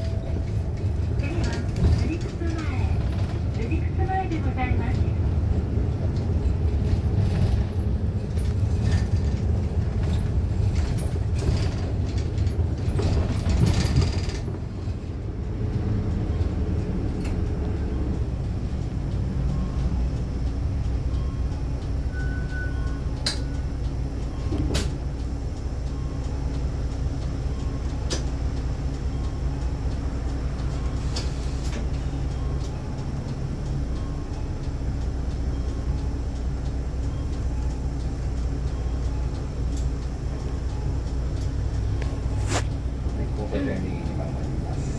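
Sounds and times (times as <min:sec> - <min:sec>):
bus engine drone: 0:00.0 - 0:44.9
short beep: 0:22.1 - 0:23.0.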